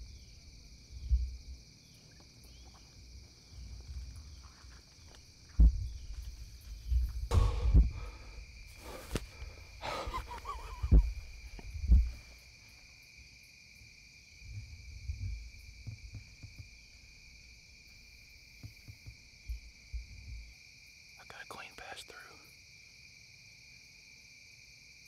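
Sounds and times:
insects trilling: 0.0s - 25.0s
brushy rustling: 2.1s - 12.6s
heavy thuds: 5.4s - 12.4s.

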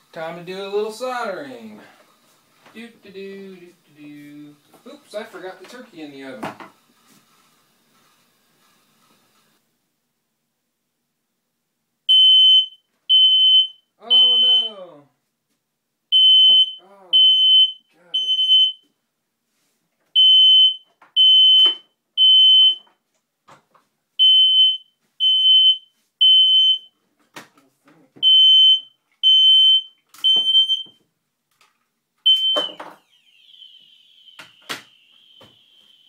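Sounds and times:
smoke alarm beeping: 12.1s - 14.8s, 16.1s - 18.8s, 20.2s - 22.9s, 24.2s - 26.9s, 28.2s - 31.0s, 32.2s - 36.0s.

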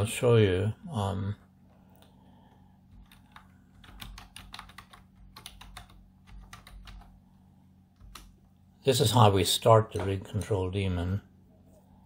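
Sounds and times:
faint steady hum: 0.0s - 12.0s
keyboard typing: 2.9s - 7.2s, 8.0s - 8.4s.

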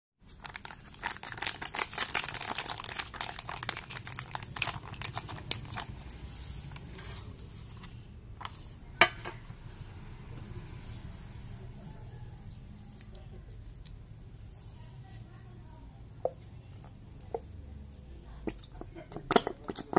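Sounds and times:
plastic sachet crinkling: 0.3s - 6.9s.

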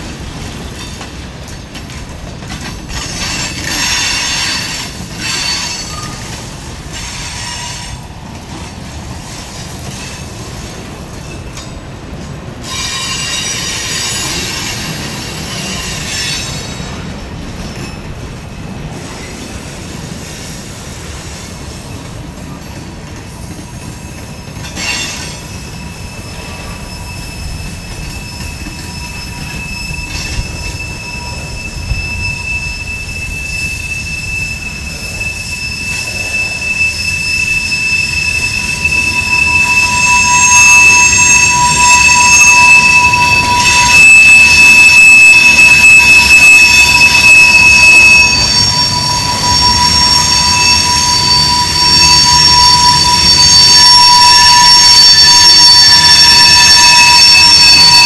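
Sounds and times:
steel wheels rumbling on rail: 0.0s - 58.0s
screeching wheel squeal: 2.8s - 11.4s, 12.6s - 18.0s, 23.2s - 58.0s
thin high squeal: 3.0s - 8.0s, 24.0s - 58.0s.

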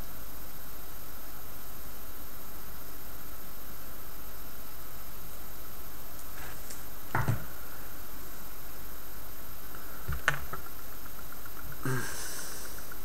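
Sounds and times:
background hiss: 0.0s - 13.0s
faint rapid ticking: 9.3s - 13.0s.

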